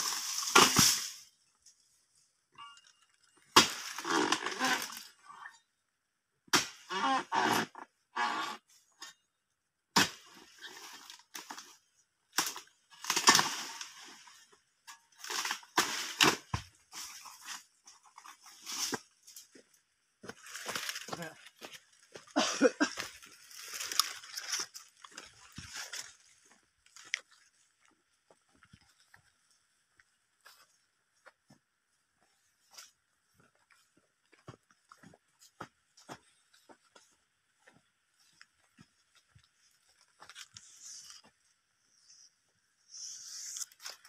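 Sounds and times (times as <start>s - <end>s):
footsteps crunching dry fronds: 10.2s - 30.8s, 32.3s - 41.5s
footsteps rustling through dry leaves: 23.1s - 26.6s.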